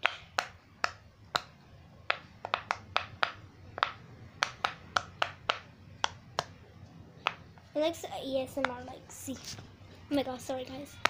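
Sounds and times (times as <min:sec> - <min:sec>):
pop-it toy bubbles popping: 0:02.1 - 0:06.5.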